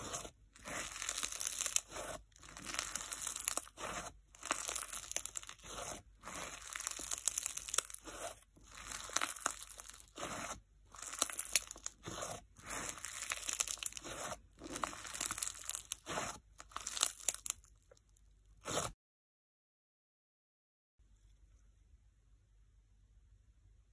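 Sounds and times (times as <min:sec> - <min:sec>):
slime crunching and crackling: 0:00.0 - 0:18.9.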